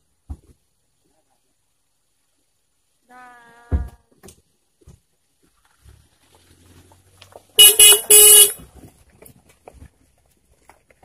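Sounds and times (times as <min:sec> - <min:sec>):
car horn toots: 0:07.6 - 0:08.6.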